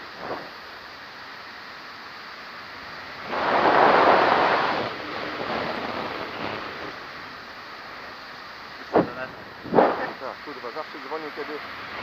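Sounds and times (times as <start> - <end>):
wind rushing over microphone: 3.2 - 7.1, 8.8 - 10.3.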